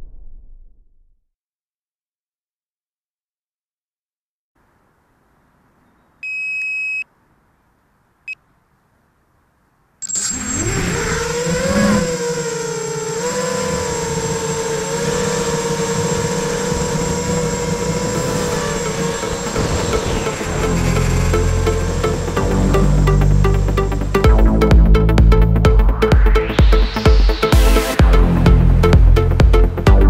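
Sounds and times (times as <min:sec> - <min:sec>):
electronic beeps: 0:06.2 - 0:07.1, 0:10.0 - 0:10.6
constant high tone: 0:10.0 - 0:12.5
quadcopter motors whining: 0:10.0 - 0:24.3.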